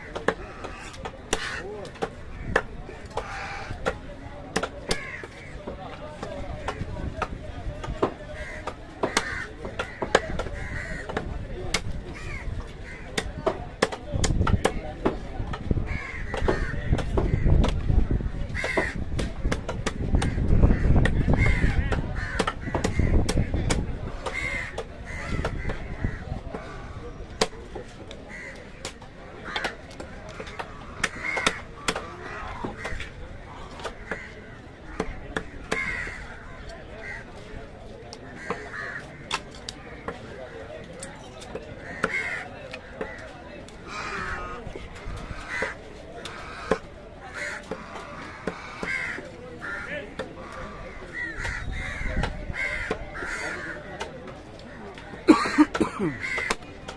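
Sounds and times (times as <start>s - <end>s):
crows cawing: 0.0s - 4.0s, 4.9s - 5.7s, 8.2s - 11.3s, 12.1s - 13.3s, 15.8s - 17.7s, 18.5s - 19.1s, 20.1s - 23.6s, 24.2s - 27.0s, 28.3s - 37.3s, 38.3s - 39.4s, 41.8s - 54.0s, 54.7s - 56.6s.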